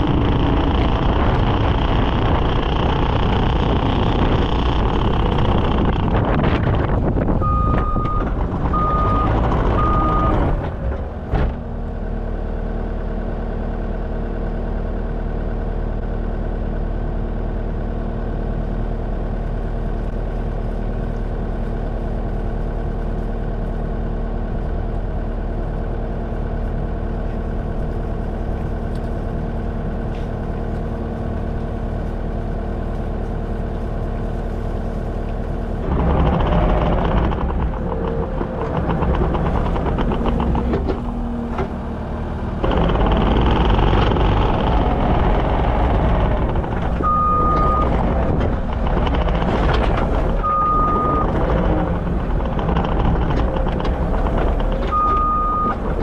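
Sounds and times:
skid steer engine running: 0.0s - 56.0s
backup alarm beeping: 7.4s - 10.4s.

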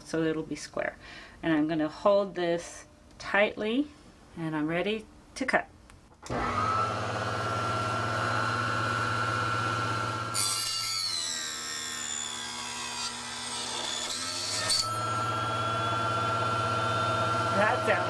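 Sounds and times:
table saw motor humming: 6.2s - 18.0s.

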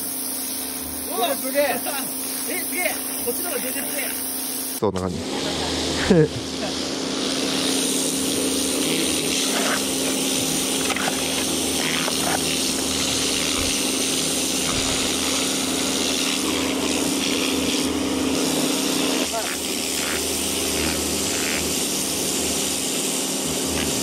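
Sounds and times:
water jet hissing on wall: 0.0s - 4.8s, 6.0s - 24.0s
pressure washer pump hum: 0.0s - 24.0s.

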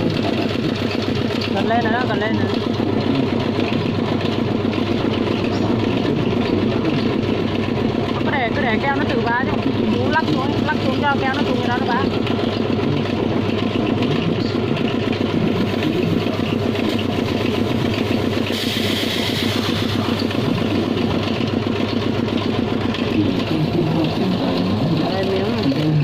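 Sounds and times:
motor running with fast pulse: 0.0s - 26.0s
burst of hiss: 18.5s - 20.1s.

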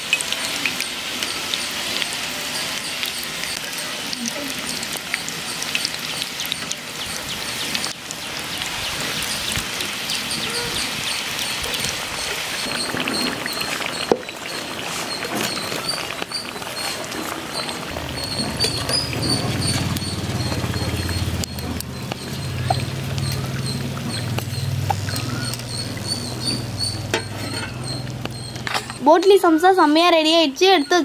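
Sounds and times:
food deep-frying in hot oil: 0.0s - 31.0s
metal skimmer scraping a pan: 12.6s - 29.3s.

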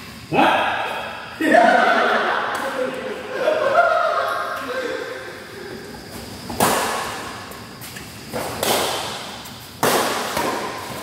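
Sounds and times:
rackets hitting shuttlecock: 6.5s - 11.0s.

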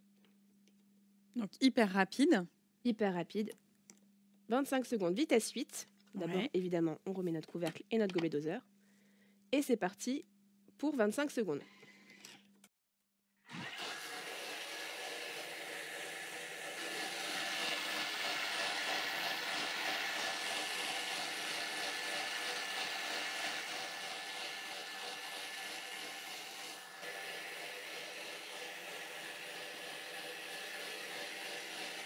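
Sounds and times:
kitchen mixer motor whirring: 13.5s - 32.0s.

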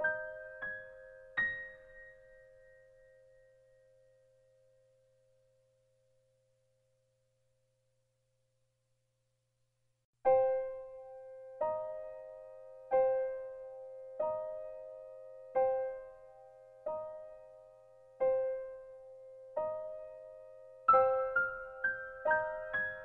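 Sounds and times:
piano notes ringing: 18.2s - 23.0s.

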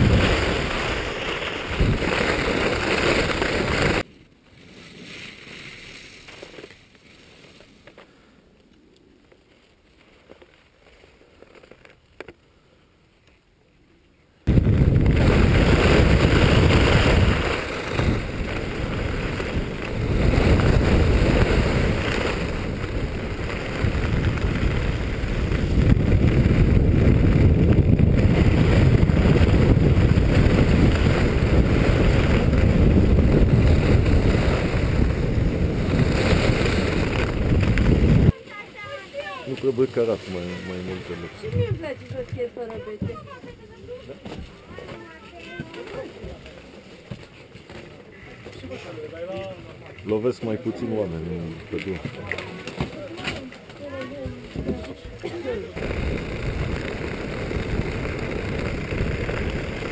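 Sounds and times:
wind buffeting microphone: 0.0s - 2.3s, 14.5s - 39.4s, 54.3s - 59.9s
skis running over snow: 0.0s - 7.9s, 14.5s - 59.9s.

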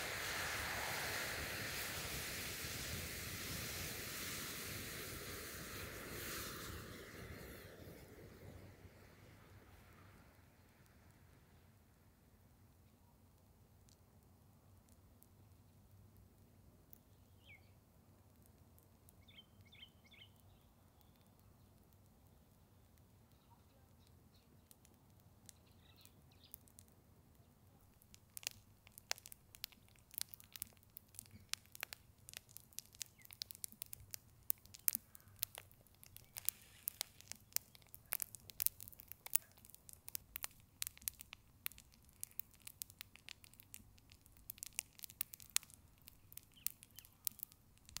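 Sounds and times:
match heads crackling and popping: 27.8s - 48.0s.

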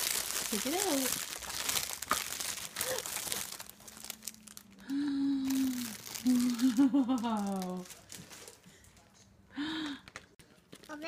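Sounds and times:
foil crinkling: 0.0s - 8.6s.

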